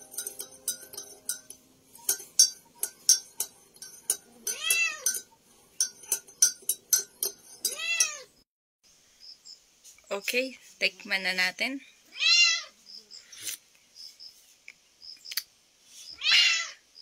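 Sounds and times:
spoon clinking in mug: 0:00.0 - 0:08.2
cat meowing: 0:12.1 - 0:12.7, 0:16.2 - 0:16.8.

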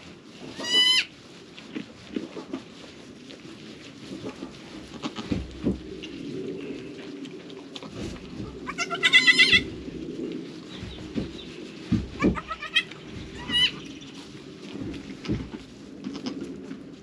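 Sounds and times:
rustling of straw: 0:00.0 - 0:17.0
goat kids bleating: 0:00.6 - 0:01.1, 0:08.7 - 0:09.6, 0:12.3 - 0:13.8.

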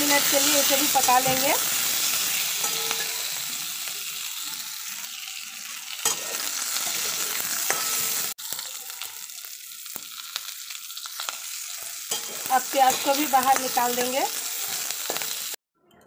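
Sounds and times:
onion sizzling in oil: 0:00.0 - 0:15.6
metal spatula scraping pan: 0:00.3 - 0:03.4, 0:06.0 - 0:08.3, 0:12.1 - 0:15.4.

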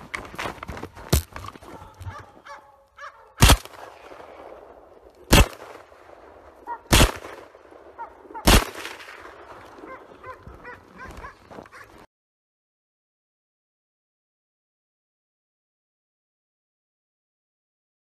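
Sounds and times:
gunshots: 0:03.4 - 0:10.3.

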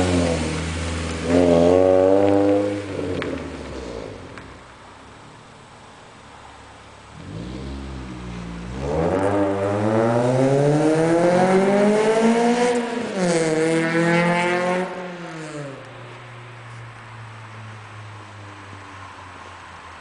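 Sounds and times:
car engine accelerating: 0:00.0 - 0:04.7, 0:07.1 - 0:17.5.

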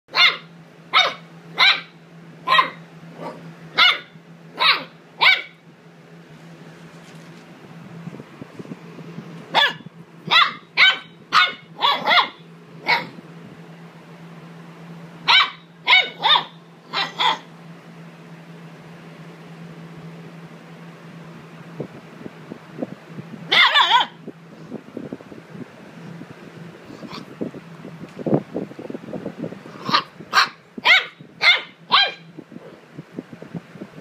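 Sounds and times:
puppy barking: 0:00.1 - 0:05.6, 0:09.5 - 0:13.2, 0:15.2 - 0:17.5, 0:23.5 - 0:24.2, 0:29.8 - 0:32.3.

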